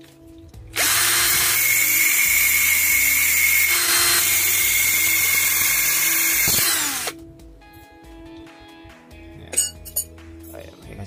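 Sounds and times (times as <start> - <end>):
drill grinding steel wire: 0.8 - 7.2.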